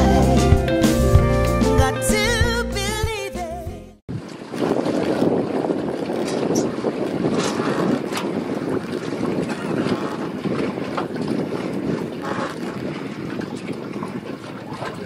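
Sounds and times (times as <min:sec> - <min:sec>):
boat engine rumble: 0:00.0 - 0:15.0
wind buffeting microphone: 0:04.1 - 0:15.0.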